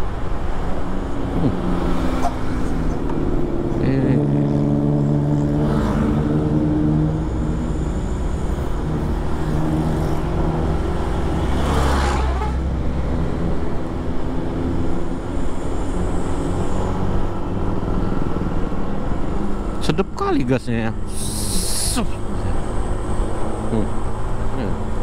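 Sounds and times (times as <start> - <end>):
tyre and road rumble: 0.0 - 25.0
vehicle engine running: 2.6 - 11.6.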